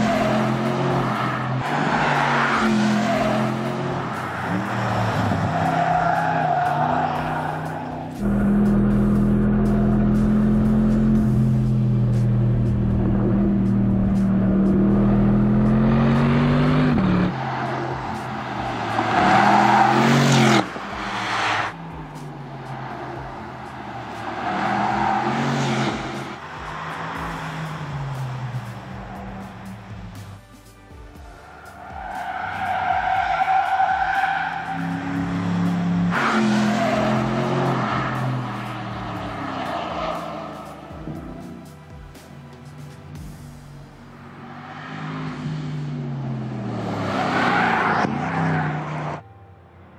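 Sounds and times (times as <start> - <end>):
tyres squealing: 0.0 - 8.7, 17.2 - 30.1, 31.5 - 41.6
car engine running on track: 0.0 - 49.3
music with steady beat: 2.6 - 44.4.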